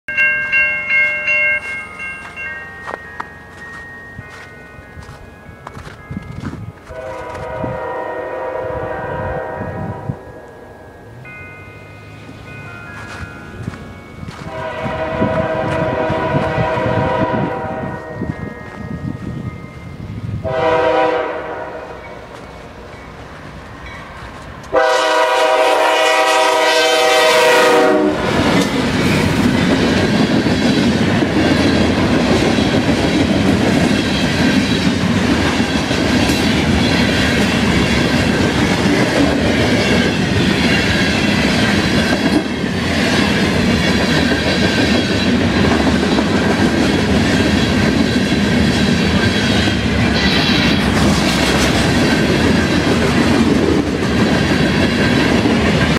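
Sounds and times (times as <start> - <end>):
locomotive air horn blast: 6.9 - 10.3, 14.5 - 18.1, 20.4 - 22.1, 24.7 - 28.5
wheels clacking over rail joints: 28.1 - 55.9.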